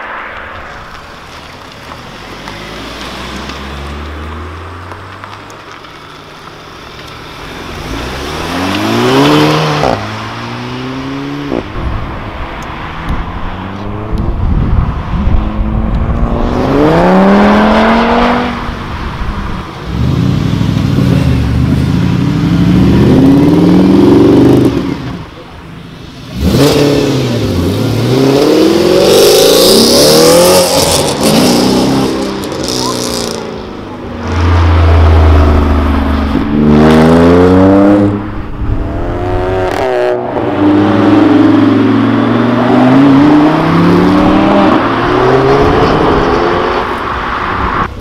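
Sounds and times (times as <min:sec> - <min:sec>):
cars accelerating hard past: 0:07.6 - 0:19.2, 0:26.0 - 0:48.0.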